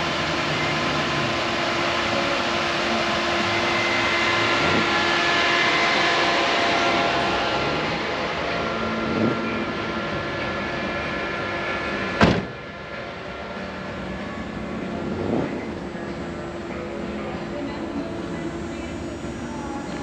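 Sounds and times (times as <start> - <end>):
machinery humming: 0.0 - 20.0
sharp knock: 12.2 - 12.5.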